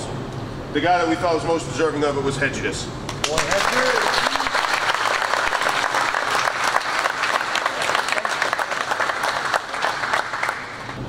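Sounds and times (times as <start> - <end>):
crowd clapping: 3.1 - 11.0.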